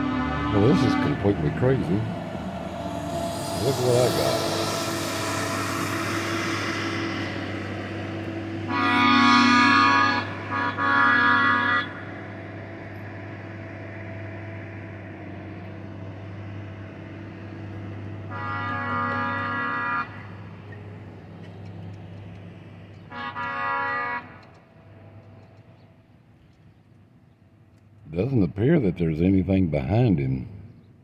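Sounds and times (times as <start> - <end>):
air horn blasts: 0.0 - 21.4, 23.0 - 25.2
low engine hum: 0.0 - 31.0.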